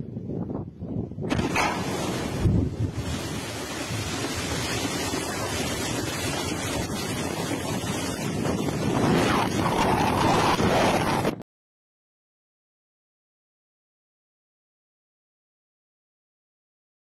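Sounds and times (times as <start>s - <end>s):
water and mud raining down: 1.3s - 11.4s.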